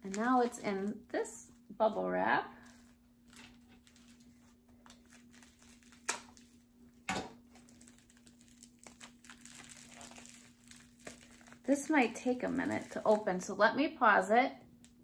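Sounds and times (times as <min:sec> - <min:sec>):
bubble wrap crinkling: 0:00.0 - 0:13.6.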